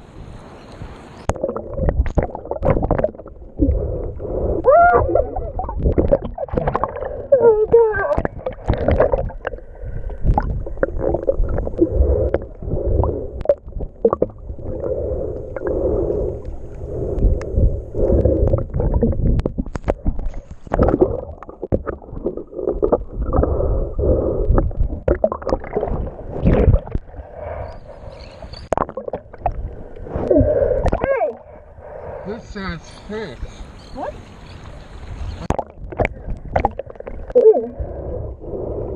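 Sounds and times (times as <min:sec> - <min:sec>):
underwater gurgling and sloshing: 0:00.0 - 0:38.9
water splashing: 0:00.8 - 0:27.7, 0:34.0 - 0:38.0.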